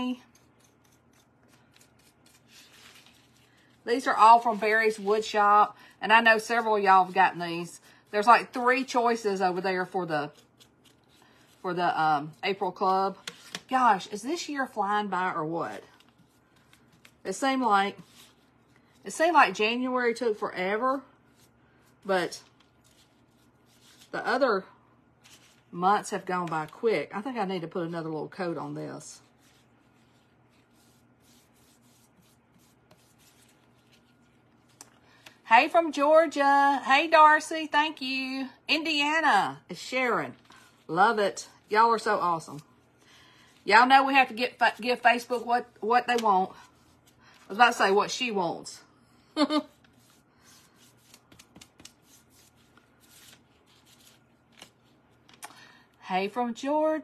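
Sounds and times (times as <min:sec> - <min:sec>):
paintbrush scratching on wood: 0:29.4 - 0:34.1.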